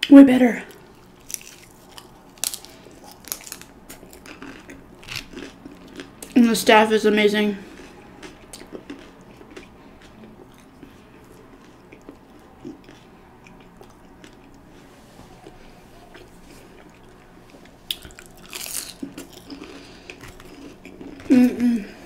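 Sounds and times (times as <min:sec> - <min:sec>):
faint chewing and mouth clicks: 0:00.7 - 0:06.4, 0:07.7 - 0:14.7, 0:15.4 - 0:21.5
crunchy bite into fried food: 0:17.9 - 0:21.1.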